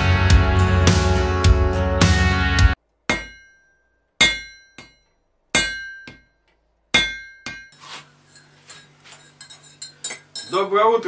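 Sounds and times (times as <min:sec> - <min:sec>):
hammer striking iron on anvil: 0:03.1 - 0:07.8
faint clinking: 0:03.2 - 0:10.7.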